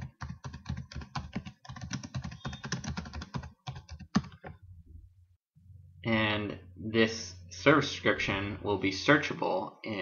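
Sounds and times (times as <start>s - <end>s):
fast typing on keyboard: 0.0s - 4.6s.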